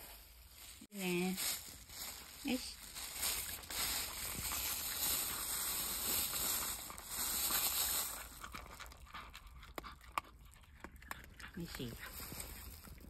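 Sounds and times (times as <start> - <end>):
dog crunching dry kibble: 1.2 - 13.0.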